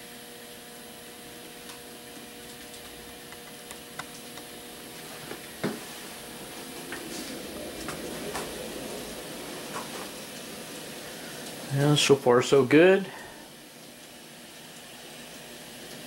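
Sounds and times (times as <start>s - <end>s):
model train hum and hiss: 0.0s - 16.0s
wheels clicking over track: 4.0s - 11.8s.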